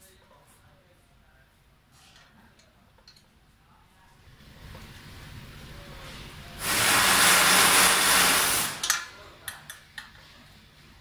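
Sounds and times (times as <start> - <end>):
loud hiss-like rush: 6.0 - 8.9.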